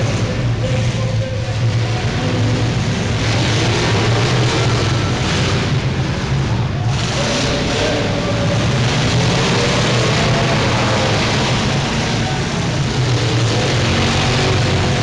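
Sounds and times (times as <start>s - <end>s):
car engines racing together: 0.0s - 15.0s.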